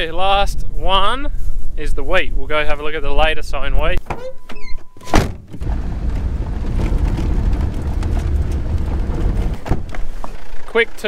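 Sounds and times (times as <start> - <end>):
car door shutting: 4.1 - 10.2
car driving on dirt road: 5.2 - 10.8.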